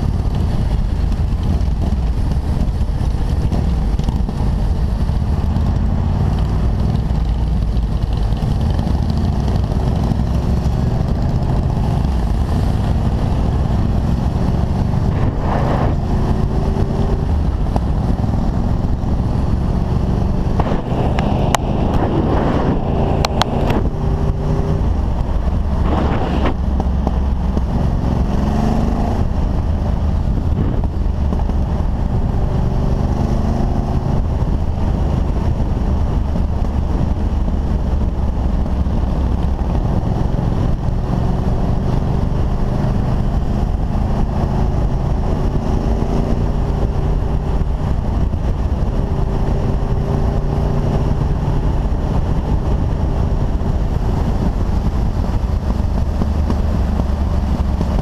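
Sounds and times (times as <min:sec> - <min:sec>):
motorcycle engine running: 0:00.0 - 0:58.0
wind noise on microphone: 0:00.0 - 0:58.0.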